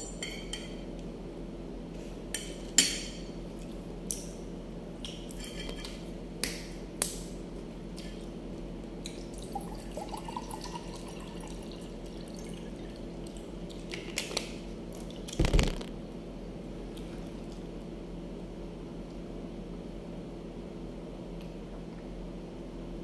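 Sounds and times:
steady low hum: 14.6 - 23.0
heavy thump: 15.4 - 15.9.

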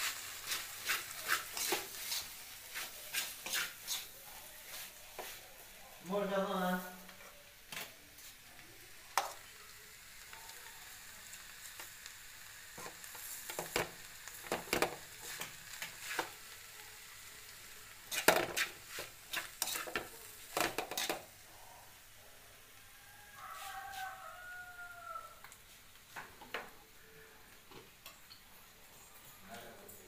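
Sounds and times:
metal spoon scraping a pan: 0.0 - 5.4, 18.1 - 21.3
faint sizzle: 0.0 - 30.0.

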